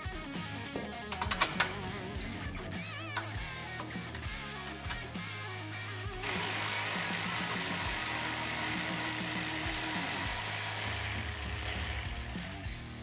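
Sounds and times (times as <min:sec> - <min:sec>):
electric ratchet whining: 0:06.0 - 0:12.9.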